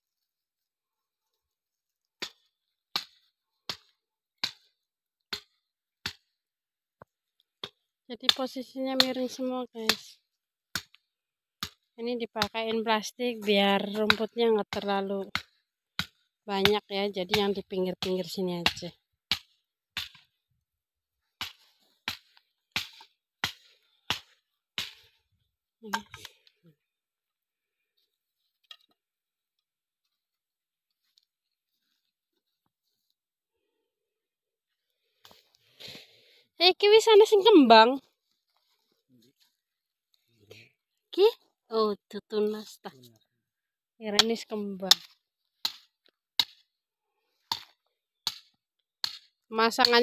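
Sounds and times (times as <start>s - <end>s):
hand tool striking ground: 2.1s - 6.4s, 7.0s - 12.8s, 13.4s - 20.5s, 21.2s - 25.2s, 44.1s - 46.8s, 47.4s - 50.0s.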